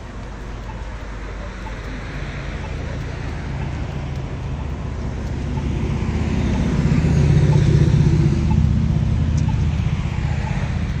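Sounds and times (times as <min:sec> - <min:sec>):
vehicle engine approaching: 0:00.0 - 0:11.0.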